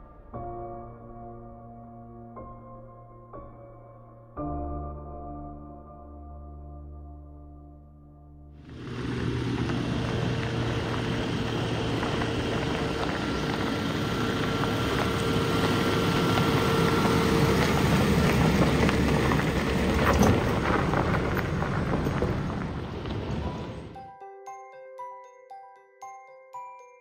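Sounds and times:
stones crackling: 8.7 - 23.9
vehicle driving on gravel: 8.7 - 24.0.

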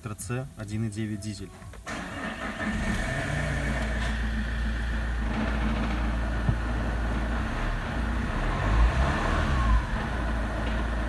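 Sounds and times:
diesel engine starting and idling: 1.8 - 11.0.

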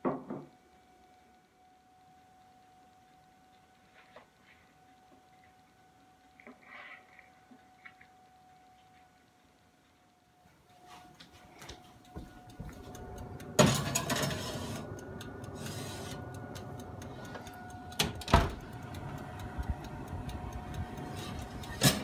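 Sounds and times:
oven hum with light ticks: 0.1 - 22.0
oven door clunk: 13.6 - 14.8, 18.0 - 18.6.

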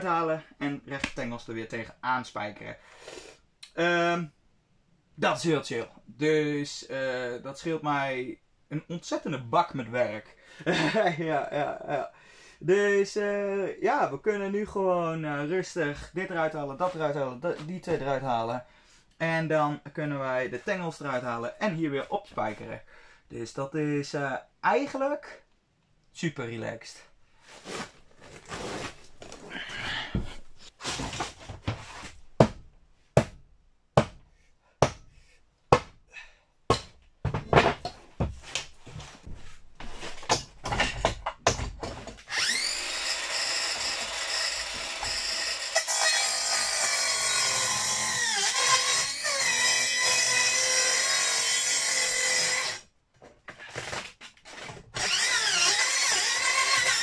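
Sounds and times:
power tool cutting wood: 42.3 - 52.8, 55.0 - 57.0.

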